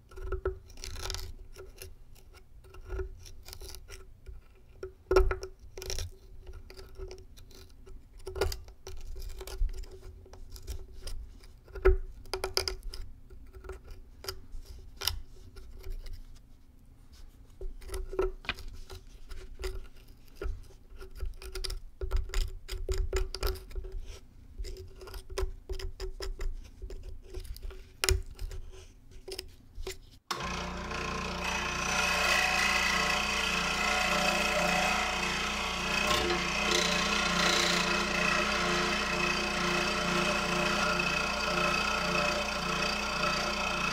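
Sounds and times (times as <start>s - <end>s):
scroll saw cutting cardboard: 30.3s - 43.9s.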